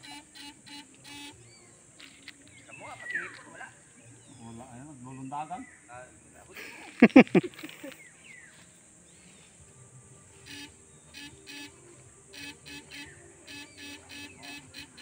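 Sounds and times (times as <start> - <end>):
electrofishing shocker buzzing: 0.0 - 1.4, 10.4 - 15.0.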